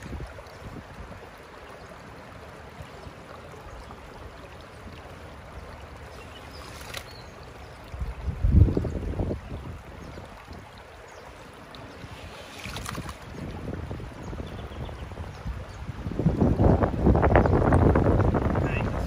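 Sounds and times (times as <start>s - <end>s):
wind rumble on microphone: 0.0s - 1.2s, 7.9s - 10.9s, 11.9s - 19.0s
river water running over rocks: 0.0s - 19.0s.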